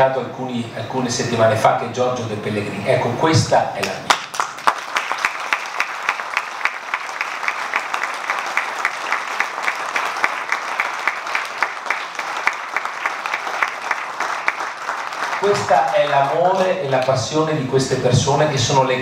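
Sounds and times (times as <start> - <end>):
close sharp hand claps: 3.8 - 17.2
audience applauding: 4.1 - 17.1.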